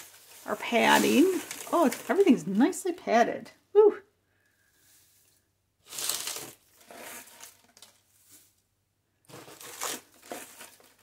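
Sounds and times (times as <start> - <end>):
paper shred rustling: 0.0 - 2.4, 5.8 - 8.6, 9.3 - 11.0.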